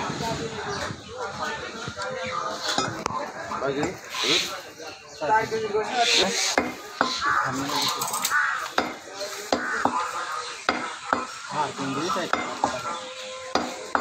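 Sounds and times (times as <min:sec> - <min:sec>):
cleaver chopping meat on wood: 0:08.8 - 0:10.0, 0:10.6 - 0:11.4, 0:12.3 - 0:12.8, 0:13.5 - 0:14.0.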